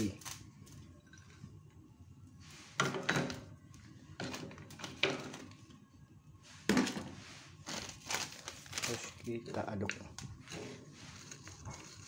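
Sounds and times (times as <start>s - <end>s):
kitchenware knocking and clattering: 2.8s - 3.4s.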